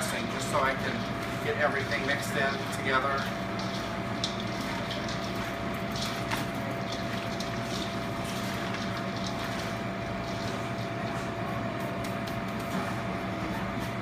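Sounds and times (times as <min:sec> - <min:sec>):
kitchen machinery humming: 0:00.0 - 0:14.0
slaw rustling in a bowl: 0:00.4 - 0:12.5.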